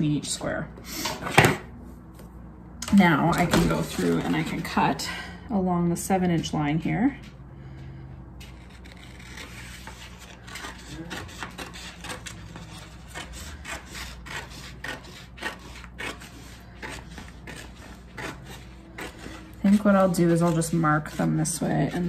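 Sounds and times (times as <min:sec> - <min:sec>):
scissors snipping paper: 0:08.5 - 0:22.0.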